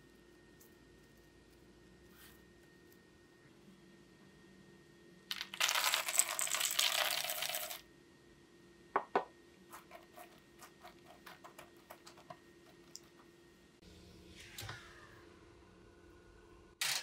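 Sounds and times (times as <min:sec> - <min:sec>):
dry pieces poured into bowl: 0:05.3 - 0:07.8.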